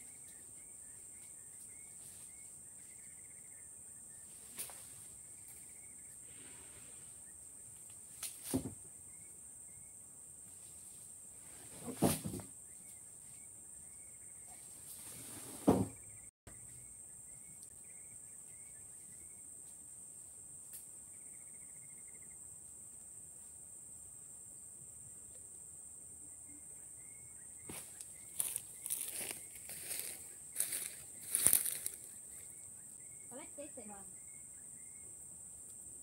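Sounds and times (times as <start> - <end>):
insect chirping: 0.0 - 15.2, 15.9 - 36.0
insects droning: 0.0 - 36.0
light footsteps: 27.7 - 32.1.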